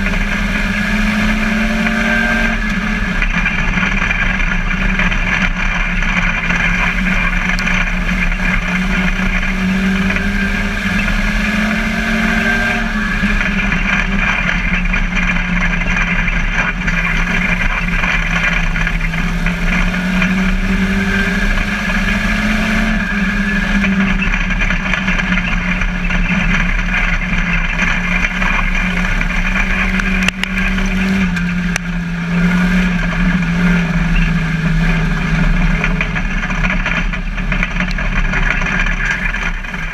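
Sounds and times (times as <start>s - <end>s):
car and track noise: 0.0s - 39.9s
race car engine running hard: 0.0s - 39.9s.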